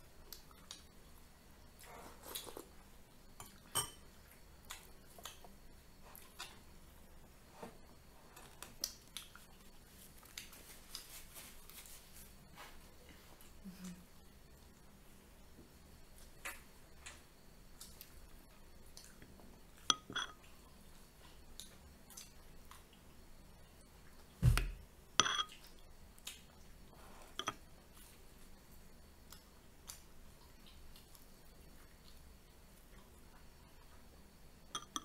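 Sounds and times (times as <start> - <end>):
spoon clinking on ceramic bowls: 3.4 - 4.0, 19.9 - 20.4, 25.2 - 25.5, 27.4 - 27.6, 34.8 - 35.0
dull thump: 24.4 - 24.8.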